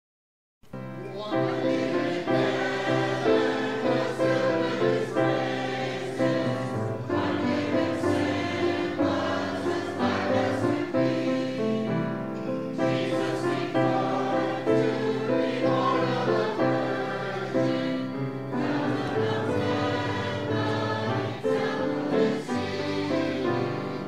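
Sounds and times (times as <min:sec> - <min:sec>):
choir singing a gospel hymn: 0:01.1 - 0:24.0.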